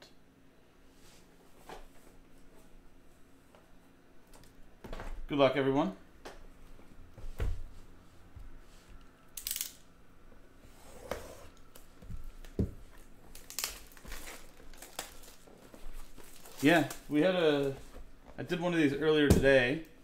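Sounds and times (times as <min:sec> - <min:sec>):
wrapping tearing and crinkling: 0:13.3 - 0:17.8.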